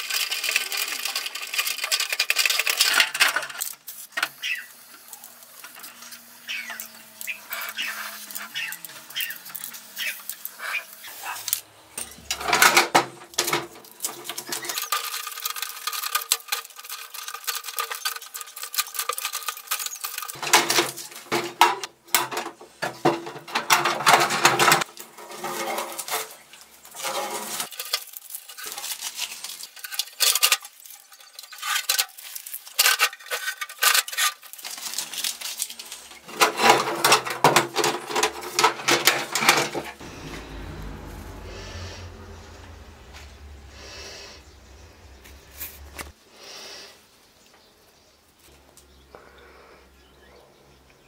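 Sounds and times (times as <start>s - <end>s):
metal toolbox clattering: 12.0s - 40.0s.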